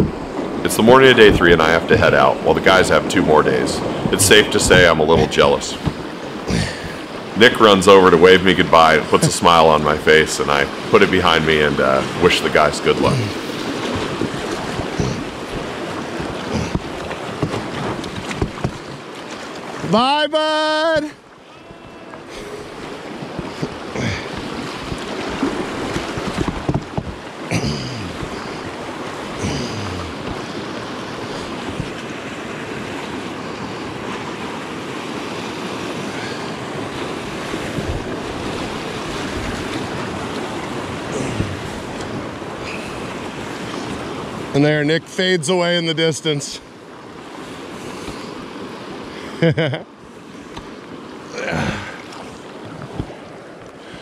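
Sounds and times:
wind on microphone: 0.0s - 0.6s, 3.4s - 7.4s, 13.2s - 19.0s, 22.0s - 34.3s, 36.0s - 44.5s
river water rushing and splashing: 0.0s - 54.0s
short knocks and slaps: 16.6s - 19.0s.

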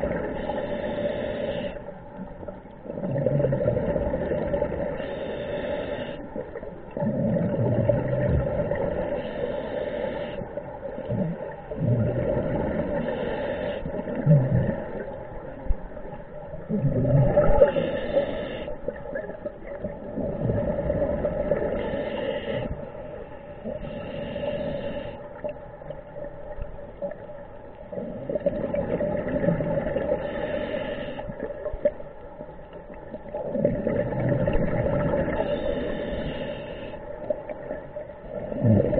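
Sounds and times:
diver inhaling through a regulator: 0.0s - 2.2s, 2.8s - 15.2s, 16.7s - 19.3s, 20.2s - 25.6s, 27.9s - 31.8s, 33.4s - 38.9s
bubbling exhaled air: 2.9s - 6.2s, 6.9s - 10.4s, 11.0s - 15.2s, 16.6s - 22.8s, 33.3s - 36.9s, 37.7s - 38.9s.

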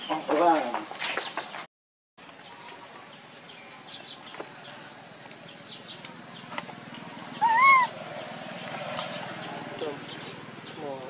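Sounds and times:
faint bird chirps: 7.3s - 7.9s
loud rising and falling call: 7.3s - 8.2s.

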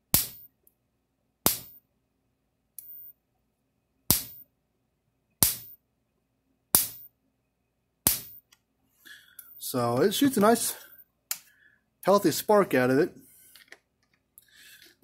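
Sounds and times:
electric fence spark snaps: 5.4s - 5.7s, 8.1s - 8.4s.

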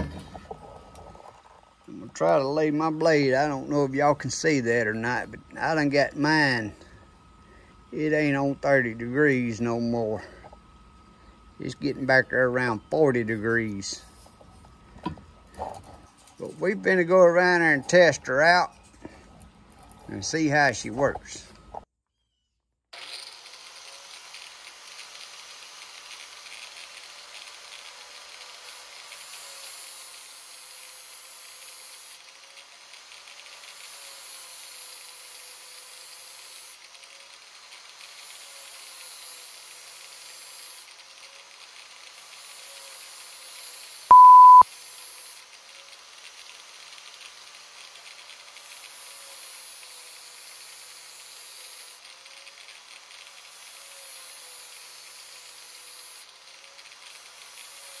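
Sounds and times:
angle grinder grinding metal: 23.0s - 58.0s
high steady beep: 44.1s - 44.6s.

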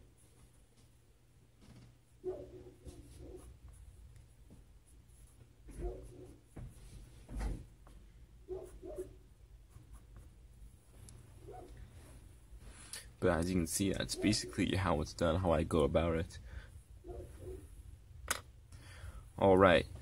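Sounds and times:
pencil scratching on paper: 2.3s - 7.1s, 8.5s - 10.5s.

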